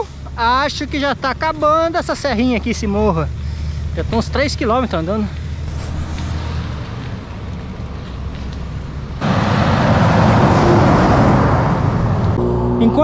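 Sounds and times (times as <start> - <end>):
road rumble: 0.0 - 13.0
vehicle rushing past: 5.5 - 13.0.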